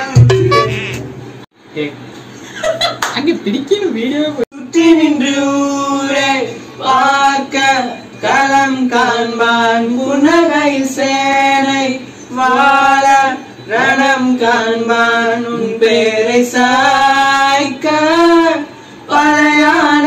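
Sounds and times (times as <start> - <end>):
man singing unaccompanied: 4.5 - 20.0.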